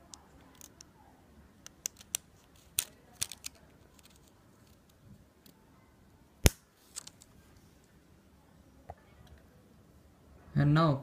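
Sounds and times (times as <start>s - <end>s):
plastic clicks and scrapes: 1.7s - 5.6s.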